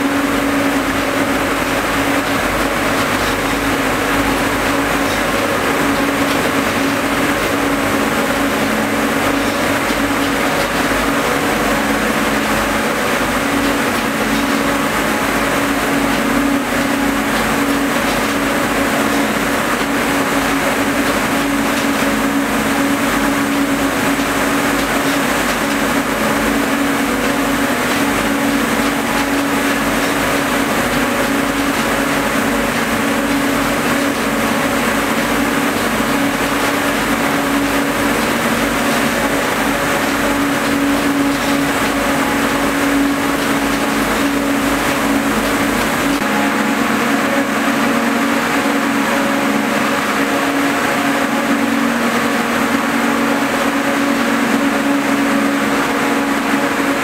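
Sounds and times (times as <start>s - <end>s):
constant machine hum: 0.0s - 57.0s
whir of spinning machines: 0.0s - 57.0s.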